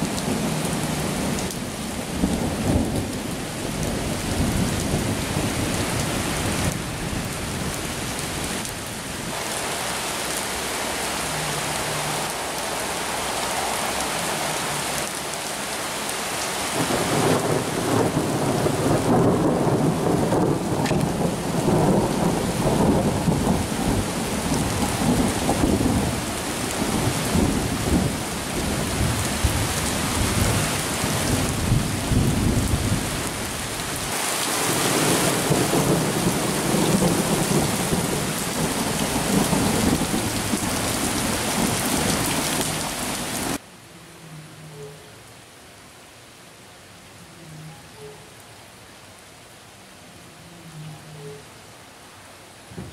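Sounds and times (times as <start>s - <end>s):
steady rain: 0.0s - 52.9s
thunder rumbling: 16.8s - 33.1s.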